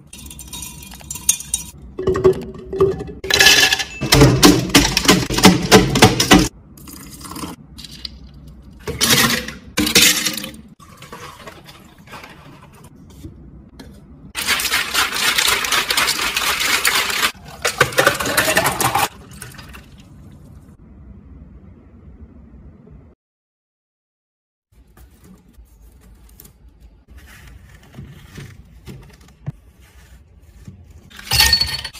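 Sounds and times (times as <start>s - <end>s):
muddler pounding in plastic cup: 4.1s - 6.5s
ice rattling in shaker: 14.4s - 20.0s.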